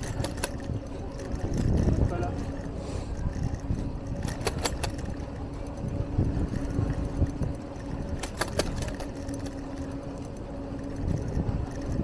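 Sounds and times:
engine hum: 0.0s - 12.0s
light metallic rattling: 0.0s - 12.0s
traffic rumble: 0.0s - 12.0s
sharp clicks: 3.2s - 5.3s, 6.6s - 9.8s.

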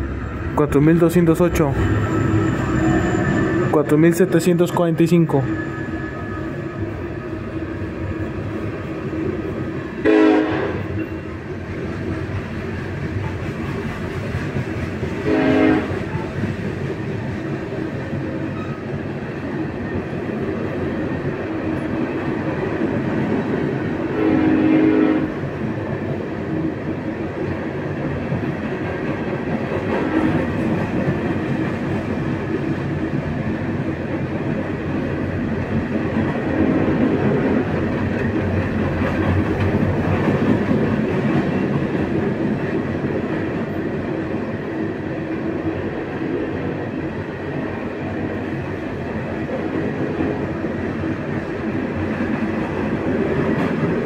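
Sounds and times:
train wheels rumbling on rails: 0.0s - 54.0s
train horn blasts: 10.0s - 10.9s, 15.2s - 16.0s, 24.1s - 25.4s, 30.0s - 30.4s.

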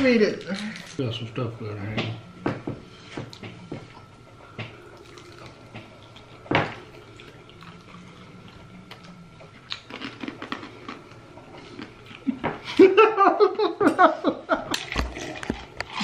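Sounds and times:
quiet chewing: 3.2s - 12.7s.

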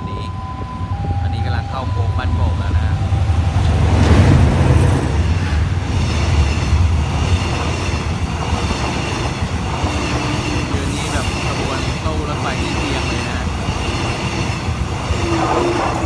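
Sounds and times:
locomotive engine rumble: 0.0s - 16.0s
train wheels on rails: 0.0s - 16.0s
high wheel squeal: 4.6s - 16.0s.

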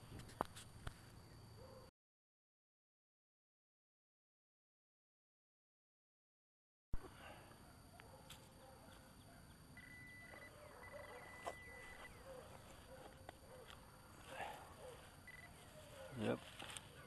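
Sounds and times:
pinpointer high beep: 9.8s - 12.2s, 15.3s - 15.6s.

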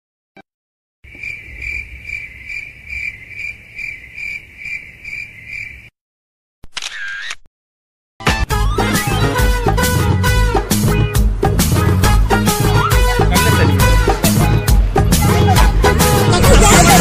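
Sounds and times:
crickets chirping: 1.1s - 5.9s
comic wobbling pitch effect: 16.3s - 17.0s.

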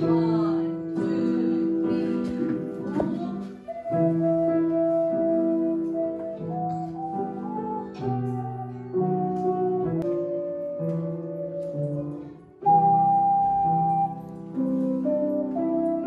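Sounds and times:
piano accompaniment: 0.0s - 16.0s
small wind instrument melody: 3.5s - 16.0s.

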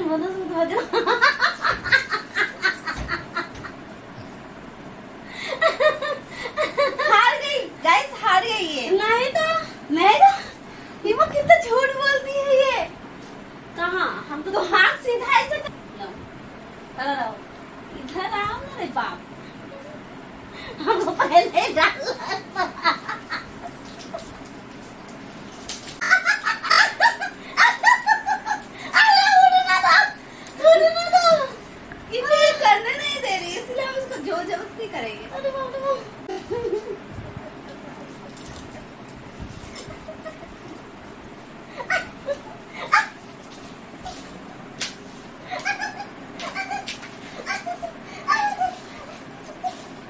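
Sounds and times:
woman laughing: 0.7s - 3.8s, 5.4s - 7.5s, 20.6s - 24.5s, 26.0s - 30.0s, 36.2s - 38.6s, 39.6s - 40.8s, 41.7s - 43.2s, 45.4s - 49.8s
woman shrieking with laughter: 45.5s - 49.8s.

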